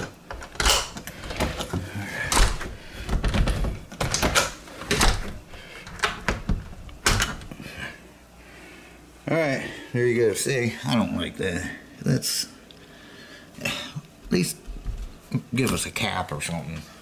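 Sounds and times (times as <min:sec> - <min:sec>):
door lock clicks and knocks: 0:03.2 - 0:07.4.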